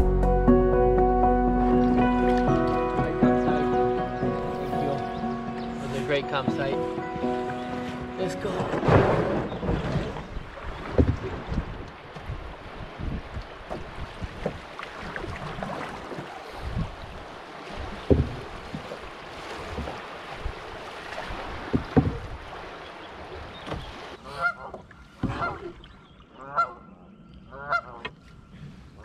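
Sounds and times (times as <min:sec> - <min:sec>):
rushing river water: 0:01.5 - 0:26.8
sharp knocks on canoe: 0:07.5 - 0:12.4, 0:13.0 - 0:14.7, 0:17.8 - 0:22.5, 0:23.5 - 0:24.0, 0:24.7 - 0:25.6
duck calling: 0:24.2 - 0:25.6, 0:26.4 - 0:26.9, 0:27.5 - 0:28.1.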